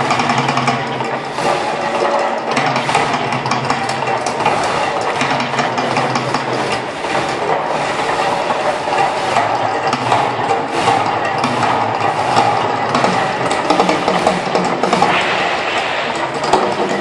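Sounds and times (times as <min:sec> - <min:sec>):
gas fire jets roaring: 0:00.0 - 0:17.0
amplified eruption effects: 0:14.9 - 0:17.0.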